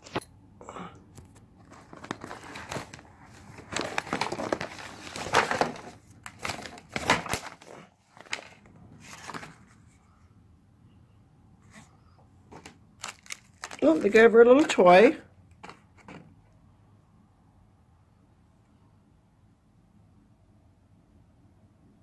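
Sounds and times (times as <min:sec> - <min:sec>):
bag and paper rustling: 0:01.2 - 0:10.0, 0:12.6 - 0:14.8.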